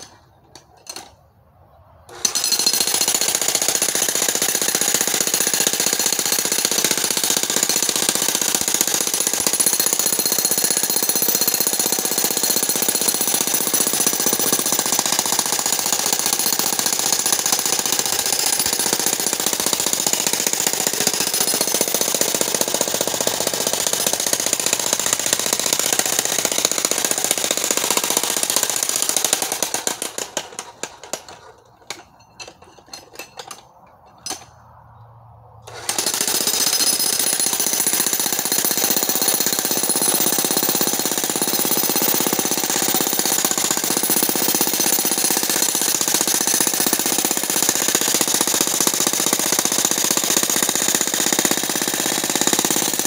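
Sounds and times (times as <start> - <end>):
jackhammer pounding rock: 2.1 - 31.5, 35.7 - 53.0.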